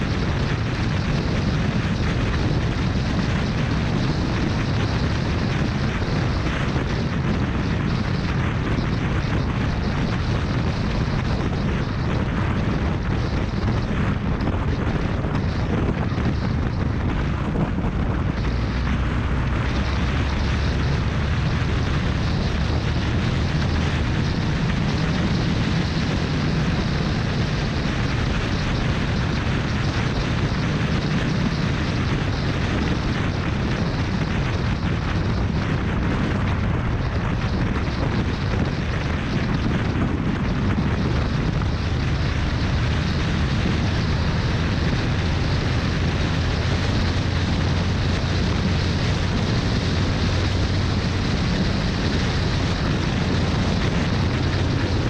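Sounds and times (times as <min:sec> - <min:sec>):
motorcycle engine: 0:00.0 - 0:55.0
wind buffeting microphone: 0:00.0 - 0:55.0.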